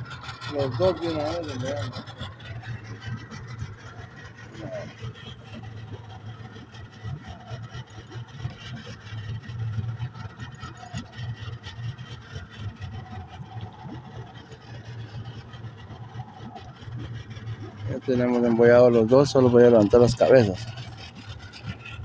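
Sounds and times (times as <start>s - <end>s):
knocks and clatter on boat: 0.0s - 22.0s
outboard motor idling: 0.0s - 22.0s.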